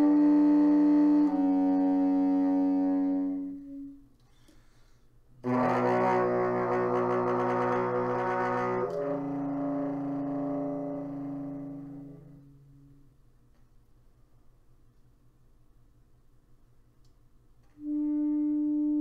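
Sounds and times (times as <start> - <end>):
tenor saxophone held notes: 0.0 - 4.1, 5.4 - 13.0, 17.7 - 19.0.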